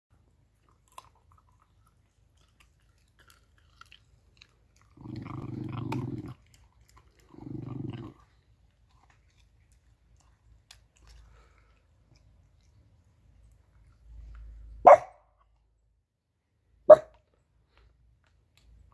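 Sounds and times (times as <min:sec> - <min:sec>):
dog gnawing a bone: 0:00.5 - 0:14.0
dog growling: 0:04.8 - 0:08.4.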